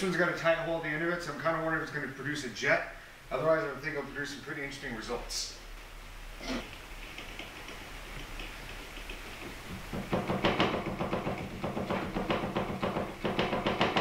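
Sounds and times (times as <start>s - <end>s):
low hiss: 0.0s - 14.0s
rapid knocking on metal tube: 7.1s - 14.0s.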